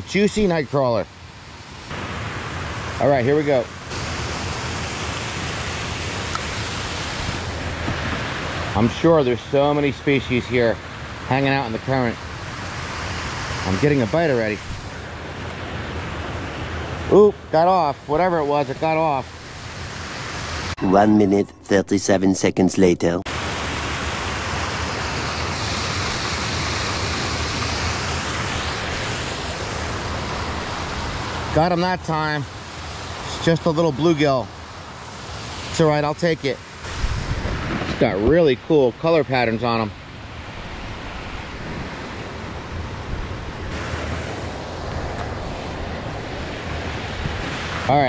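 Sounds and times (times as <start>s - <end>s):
water rushing over rocks: 1.9s - 20.9s, 23.3s - 39.9s.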